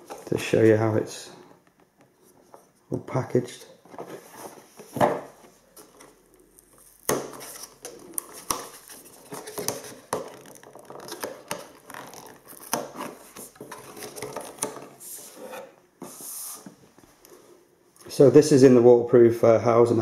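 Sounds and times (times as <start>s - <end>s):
cardboard rustling and scraping: 3.4s - 17.6s.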